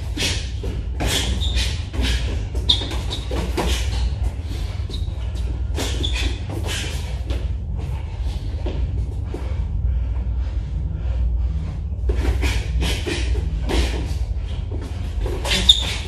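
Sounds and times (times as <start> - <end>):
low hum: 0.0 - 16.0
shoes squeaking on gym floor: 1.0 - 4.1, 5.8 - 6.9, 15.4 - 16.0.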